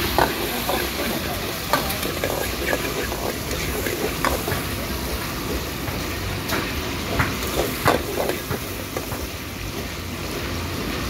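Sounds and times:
garlic sizzling in oil: 0.0 - 11.0
gas burner rushing: 0.0 - 11.0
metal ladle scraping wok: 7.4 - 9.2.

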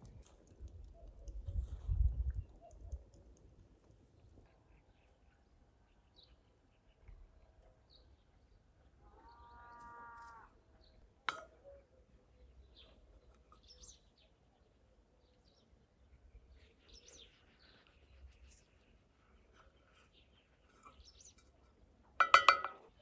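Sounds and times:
faint bird chirps: 4.0 - 21.8.

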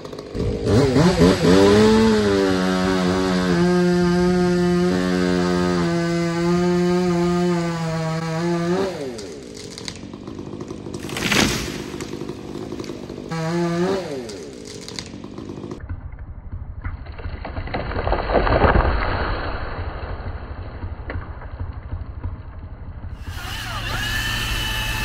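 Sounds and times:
chainsaw cutting tree: 0.0 - 16.0
tree crashing down: 8.7 - 15.8, 17.0 - 21.8
steady engine sound: 20.7 - 25.0.

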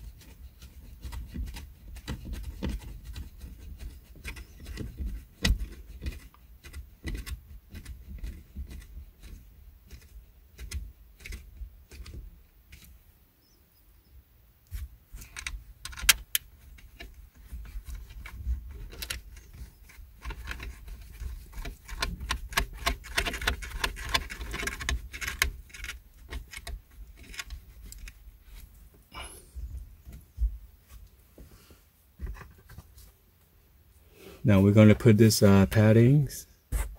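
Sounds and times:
plastic bracket clicking and rattling: 0.6 - 12.9, 15.1 - 28.2.

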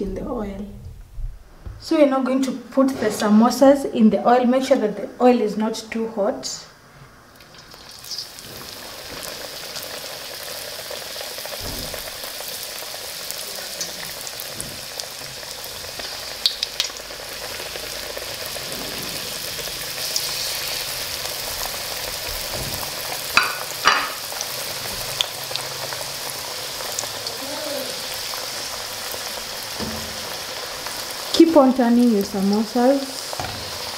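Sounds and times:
oil sizzling and bubbling: 6.8 - 33.9
oil popping and crackling: 7.3 - 33.9.

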